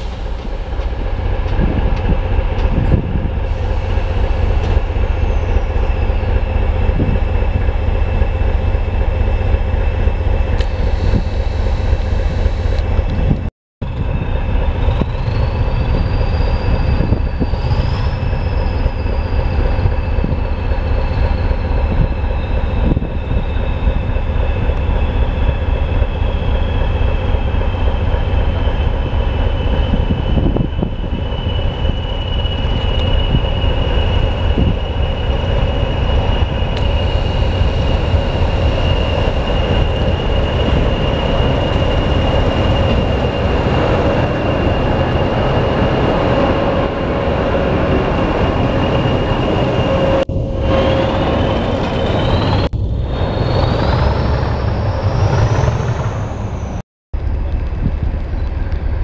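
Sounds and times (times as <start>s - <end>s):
locomotive high whine: 0.0s - 59.0s
train heavy rumble: 0.0s - 59.0s.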